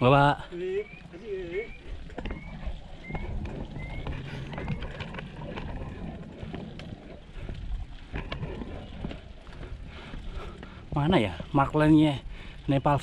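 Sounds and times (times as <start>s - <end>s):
wind and tyre rolling rumble: 0.0s - 13.0s
bike clicks: 1.8s - 13.0s.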